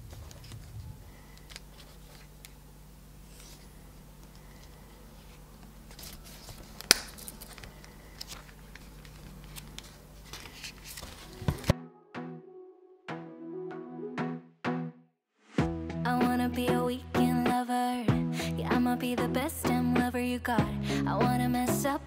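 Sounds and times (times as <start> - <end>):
banknotes rustling: 0.0 - 2.5, 3.2 - 11.7.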